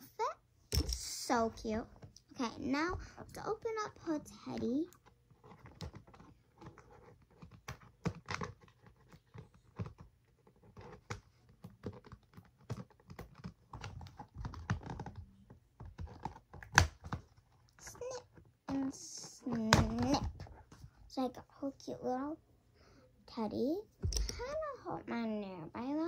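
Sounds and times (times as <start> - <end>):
light clicks and taps of packaging: 4.5 - 20.9.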